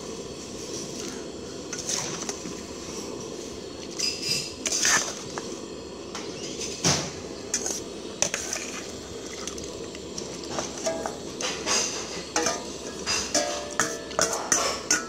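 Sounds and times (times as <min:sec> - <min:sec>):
metal ladle clinking on pot: 0:10.8 - 0:15.0.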